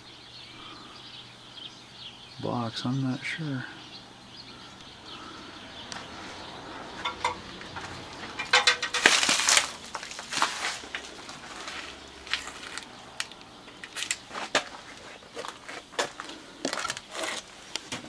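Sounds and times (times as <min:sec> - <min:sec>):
plastic packaging crinkling: 0:08.4 - 0:18.0.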